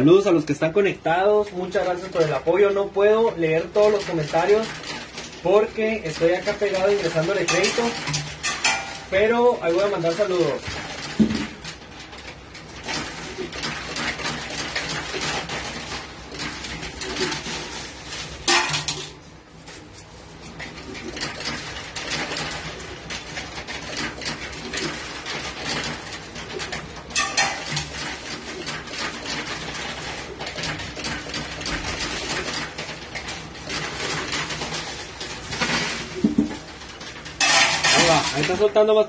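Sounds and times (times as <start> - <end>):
coins clinking and rattling: 6.1 - 12.2, 20.8 - 38.6.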